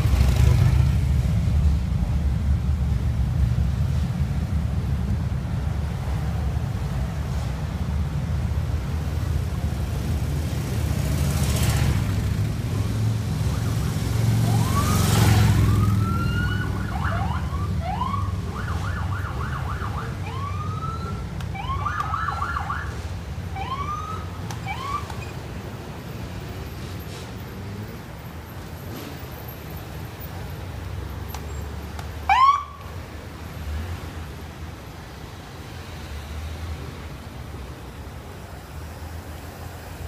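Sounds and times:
car engines rumbling past: 0:00.0 - 0:32.2
police sirens whooping: 0:13.4 - 0:25.3, 0:32.3 - 0:32.9.

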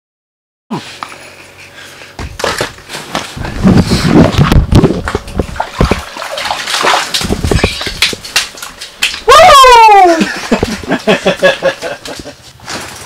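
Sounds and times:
water sloshing and splashing: 0:04.4 - 0:09.3.

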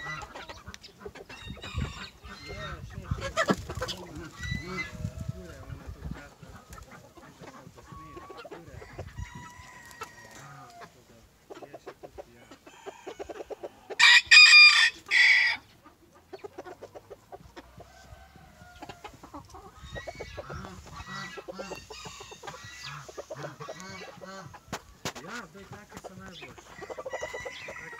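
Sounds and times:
chicken clucking: 0:00.0 - 0:27.9
rooster crowing: 0:14.0 - 0:15.6, 0:26.7 - 0:27.9.

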